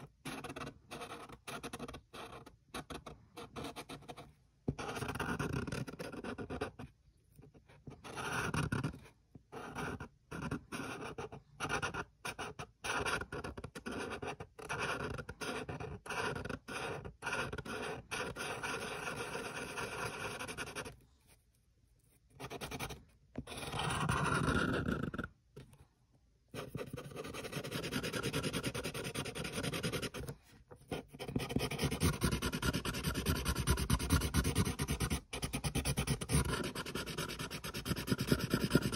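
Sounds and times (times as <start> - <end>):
marker scribbling on paper: 9.6 - 21.0, 26.6 - 38.9.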